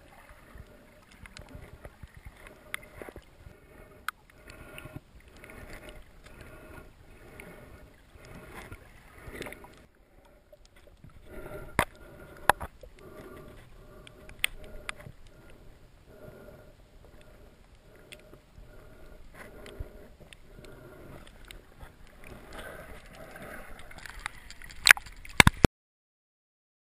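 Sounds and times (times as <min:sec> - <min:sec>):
muffled underwater water wash: 0:00.0 - 0:25.6
water splashing: 0:00.0 - 0:25.7.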